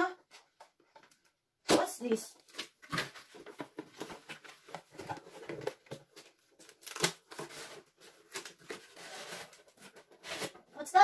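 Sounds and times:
packaging rustling: 2.4 - 10.7
tearing rasp: 6.8 - 10.6.

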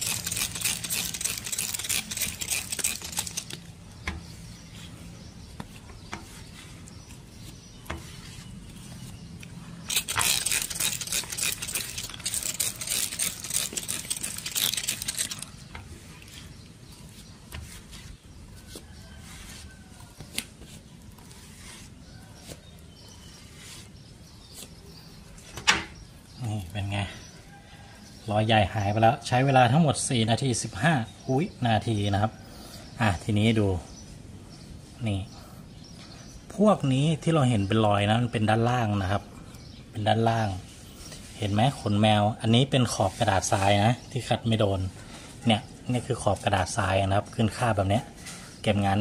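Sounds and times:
squeegee scraping windshield: 0.0 - 3.7, 9.9 - 24.9.

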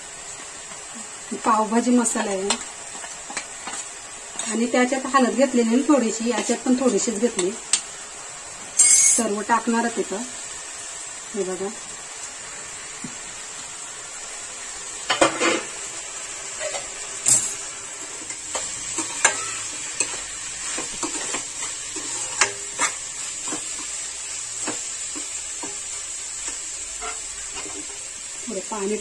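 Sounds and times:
vegetables sizzling in oil: 0.0 - 29.0
steel spoon scraping a pan: 18.2 - 24.0, 26.4 - 28.0.

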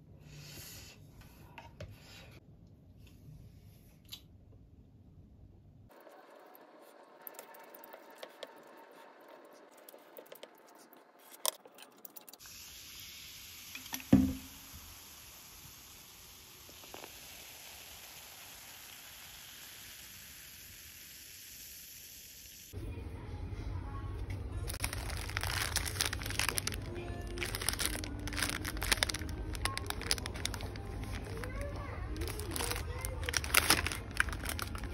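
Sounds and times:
cola fizzing in glass: 12.4 - 22.1
background music: 22.8 - 33.2
plastic wrapper crinkling: 24.6 - 34.9.

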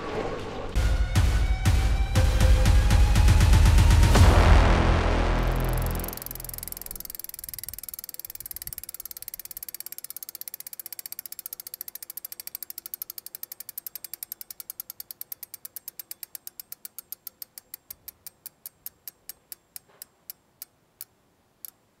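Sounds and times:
bicycle freehub ratcheting clicks: 5.7 - 21.9.

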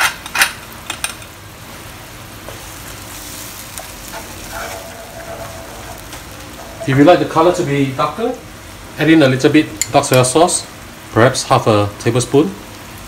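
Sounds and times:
sauce sizzling in a wok: 0.6 - 13.0
wooden spatula stirring: 2.4 - 7.3
metal pepper shaker dash: 4.1 - 7.2.

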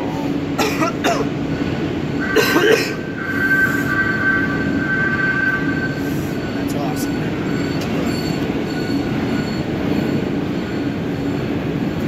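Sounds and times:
high whine: 0.0 - 12.0
steady mechanical hum: 0.0 - 12.0
man coughing: 0.6 - 1.3, 2.3 - 3.0.

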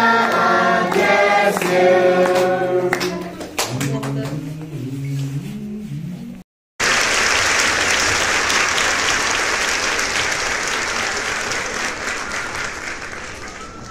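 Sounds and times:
crowd applauding: 6.8 - 13.9.

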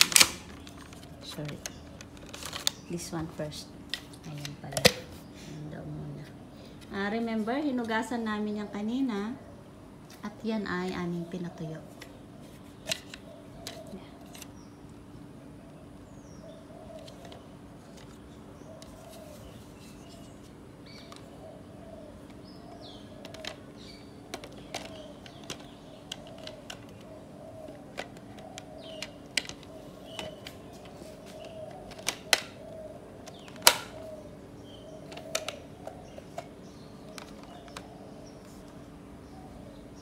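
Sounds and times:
plastic parts clicking and knocking: 0.0 - 2.9, 12.8 - 14.5, 22.2 - 32.6, 33.2 - 34.0, 35.0 - 37.9.

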